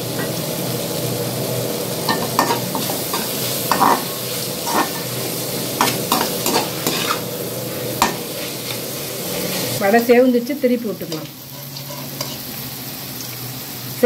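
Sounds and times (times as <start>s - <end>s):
frying sizzle: 0.0s - 14.0s
spatula scraping a steel pan: 2.4s - 5.1s, 5.8s - 7.3s, 11.5s - 12.4s.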